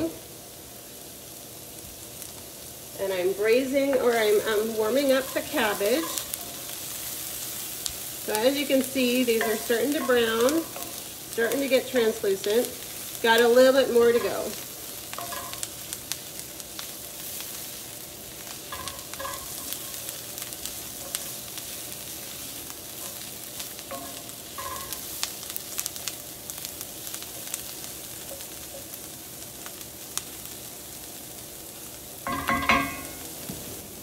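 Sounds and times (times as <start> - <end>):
onions sizzling in a skillet: 0.0 - 34.0
crackles and pops: 5.2 - 32.2.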